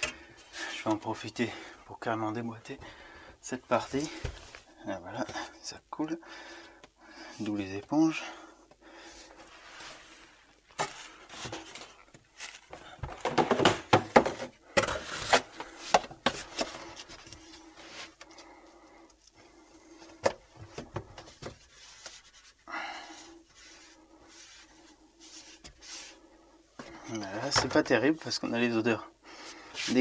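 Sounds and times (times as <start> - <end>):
plastic pipe knocking and clattering: 12.7 - 16.8.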